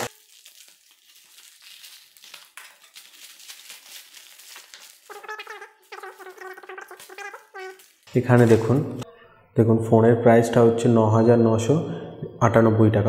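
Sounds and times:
plastic film rustling: 0.0 - 9.0
high wavering voice: 5.1 - 9.4.

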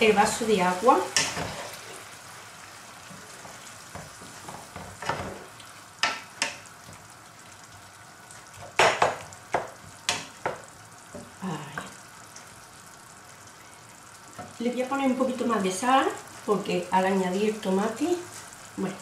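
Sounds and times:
low sizzle: 0.0 - 19.0
wooden spoon scraping a pan: 0.3 - 2.2.

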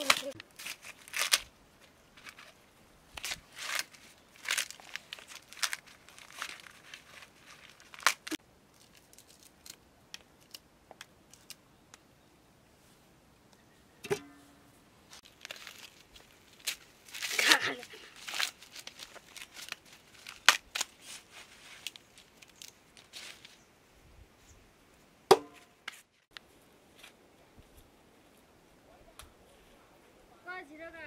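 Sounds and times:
husks tearing and rustling: 0.0 - 1.5, 2.2 - 9.6, 15.1 - 23.6.

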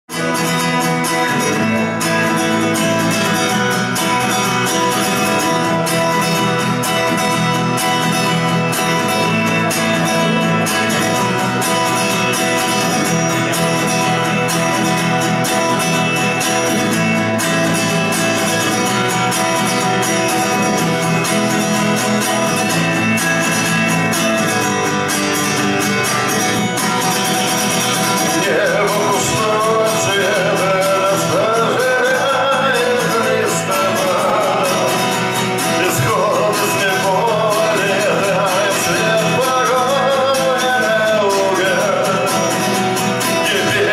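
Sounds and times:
acoustic guitar strumming: 0.1 - 43.9.

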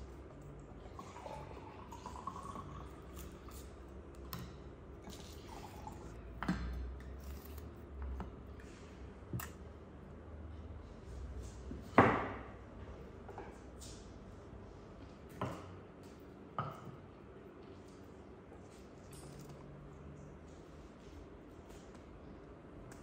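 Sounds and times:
drink poured into glass: 1.0 - 3.6.

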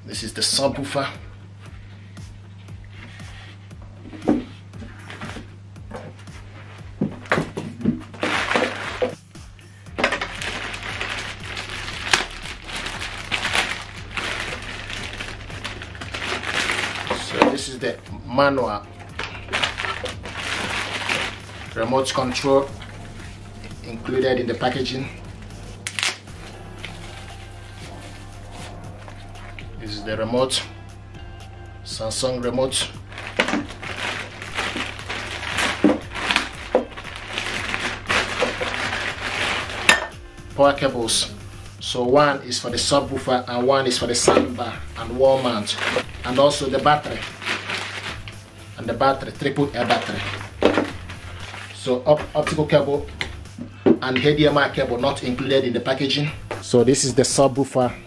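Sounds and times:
plastic bag crinkling: 8.1 - 9.2, 9.9 - 18.0, 19.0 - 28.0, 32.6 - 40.1, 44.0 - 53.4.

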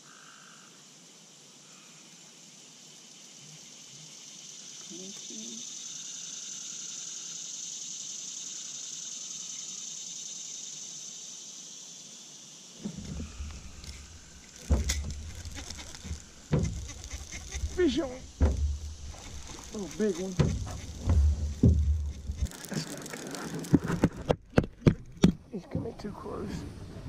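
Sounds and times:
low rumbling handling noise: 12.8 - 26.2
high-pitched chorus of swamp animals: 13.0 - 23.7.

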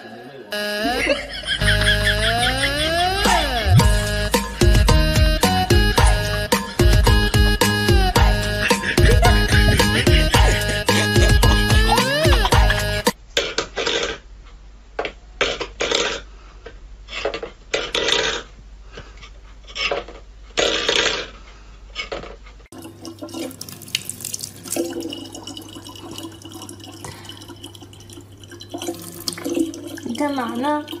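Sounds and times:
music tune: 0.5 - 13.2
tap water trickling into bottle: 22.8 - 30.2.

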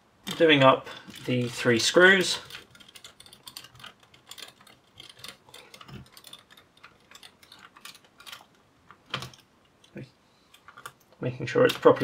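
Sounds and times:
screwdriver clicking on screws: 2.4 - 9.4.

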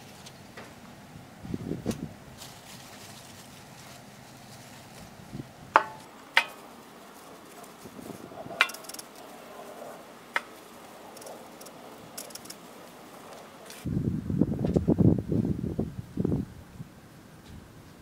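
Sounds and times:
leaves rustling: 0.0 - 14.0
radishes knocking into metal tub: 5.8 - 6.7.

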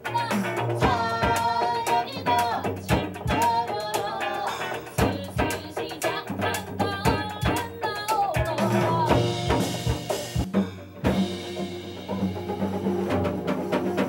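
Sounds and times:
woman singing: 0.0 - 9.6
drum kit and hand percussion: 0.0 - 14.0.

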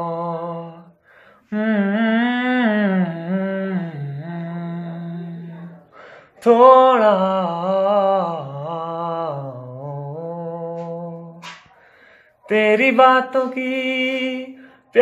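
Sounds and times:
man singing unaccompanied: 0.0 - 11.5, 12.4 - 15.0
man breathing: 0.9 - 1.6, 5.9 - 6.4, 11.7 - 12.5.

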